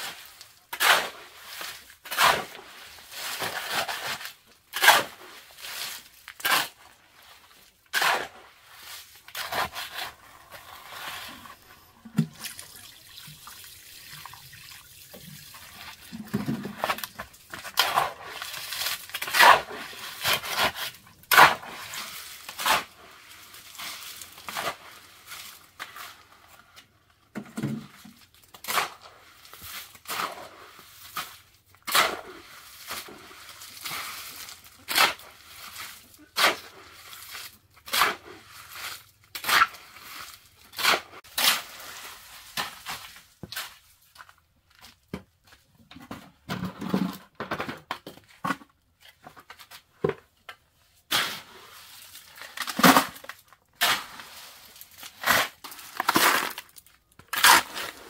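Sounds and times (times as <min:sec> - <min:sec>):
shovel scraping wet concrete: 0:00.0 - 0:12.8, 0:15.6 - 0:26.5, 0:28.5 - 0:44.0, 0:51.0 - 0:58.0.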